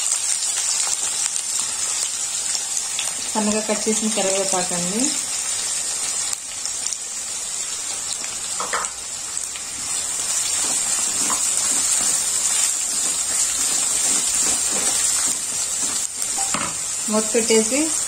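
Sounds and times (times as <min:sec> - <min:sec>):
vegetables sizzling in hot oil: 0:00.0 - 0:18.0
spatula scraping a pan: 0:09.8 - 0:16.8.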